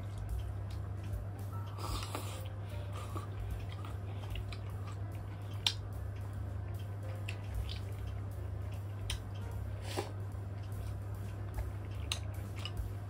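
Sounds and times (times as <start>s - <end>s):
quiet chewing: 0.0s - 13.0s
steady low hum: 0.0s - 13.0s.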